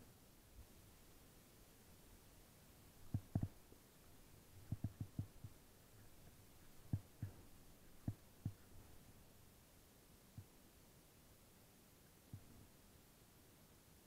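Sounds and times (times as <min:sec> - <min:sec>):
faint steady hiss: 0:00.0 - 0:14.0
soft low thumps: 0:03.1 - 0:03.6, 0:04.6 - 0:09.1.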